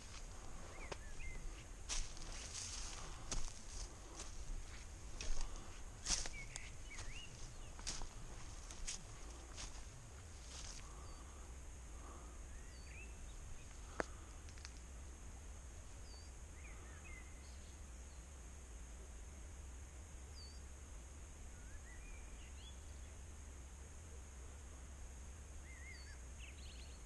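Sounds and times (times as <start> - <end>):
faint bird chirps: 0.0 - 3.2, 5.1 - 9.8, 10.4 - 14.2, 15.9 - 18.3, 21.5 - 23.2, 25.6 - 27.0
low rumble and hiss: 0.0 - 27.0.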